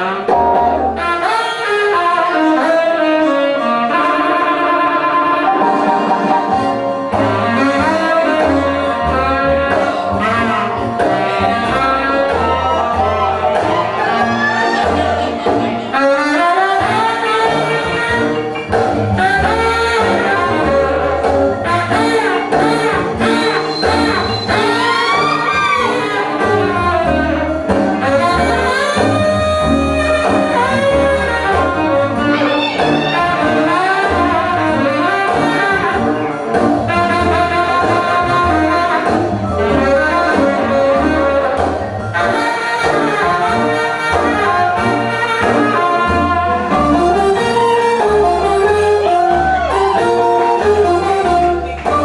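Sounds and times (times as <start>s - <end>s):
loud music with brass melody: 0.0s - 52.0s
steady bass beat: 6.5s - 24.9s.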